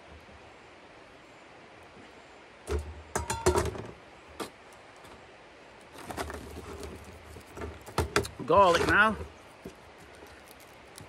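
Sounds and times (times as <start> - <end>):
rustling: 5.8 - 11.0.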